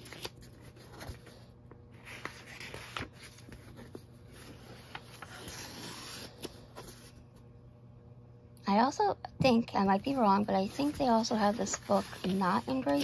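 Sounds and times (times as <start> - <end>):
paper pages rustling: 0.0 - 7.2, 10.1 - 13.0.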